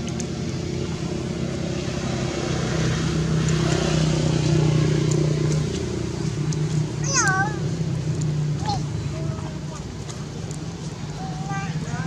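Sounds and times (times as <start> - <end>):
motorbike engine passing: 0.6 - 9.7.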